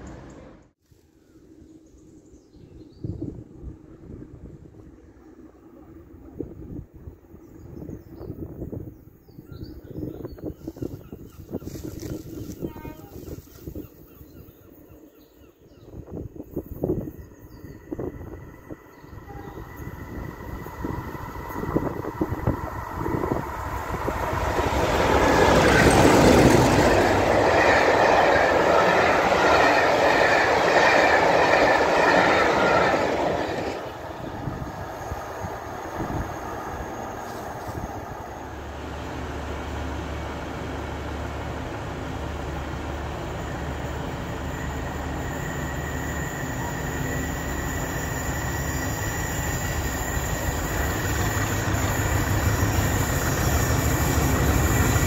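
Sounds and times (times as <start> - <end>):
diesel locomotives passing: 0.0 - 0.8, 3.2 - 55.0
low diesel hum: 34.0 - 45.2.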